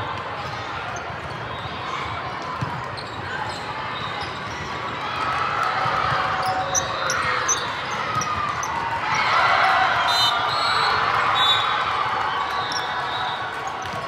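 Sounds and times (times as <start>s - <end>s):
many overlapping voices: 0.0s - 14.0s
shoe squeaks: 6.4s - 8.8s, 12.5s - 14.0s.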